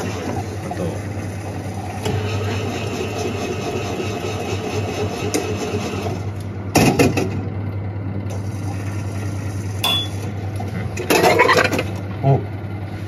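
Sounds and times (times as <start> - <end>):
vending machine humming and whirring: 0.0 - 13.0
loud mechanical clunk: 6.7 - 7.5.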